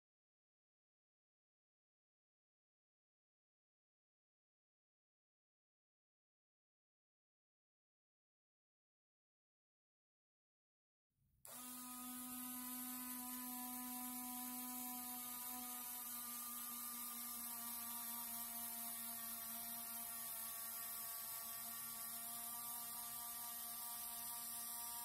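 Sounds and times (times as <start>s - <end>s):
electric motor and gearbox whining: 11.5s - 25.0s.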